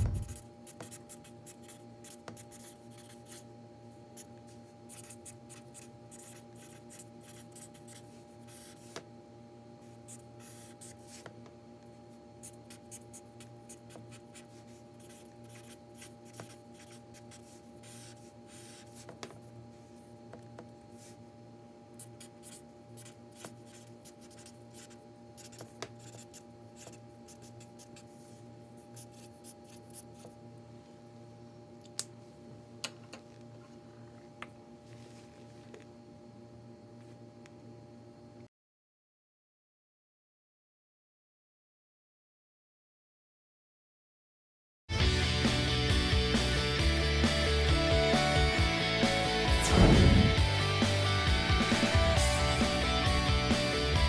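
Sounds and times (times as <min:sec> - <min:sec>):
marker writing on paper: 0:00.0 - 0:03.4, 0:04.9 - 0:09.0, 0:10.1 - 0:11.4, 0:12.4 - 0:19.4, 0:22.0 - 0:28.4
faint steady hum: 0:00.0 - 0:38.5.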